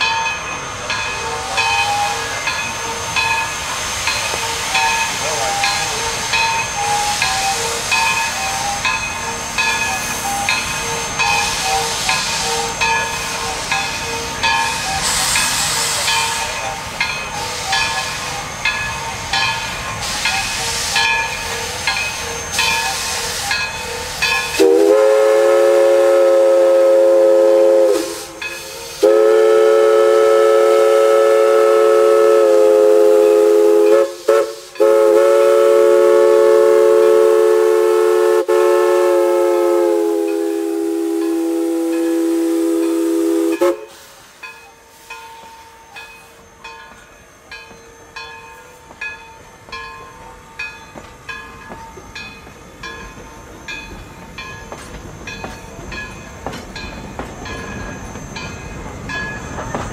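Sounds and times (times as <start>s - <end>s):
steam locomotive exhaust chuffing: 0.0s - 59.9s
steam whistle blasts: 1.2s - 3.2s, 3.8s - 16.6s, 20.0s - 44.2s.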